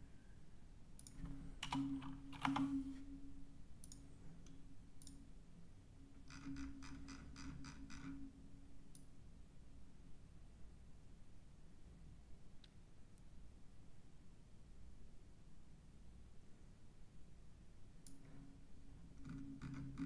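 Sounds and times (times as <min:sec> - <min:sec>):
keyboard typing: 0:01.0 - 0:02.9.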